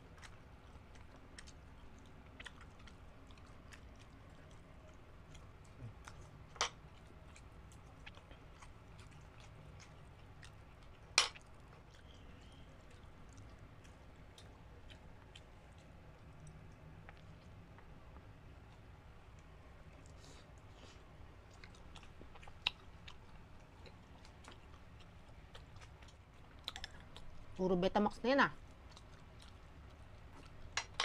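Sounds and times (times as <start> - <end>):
people chewing: 0.0 - 31.0
wet mouth clicks: 26.6 - 27.3.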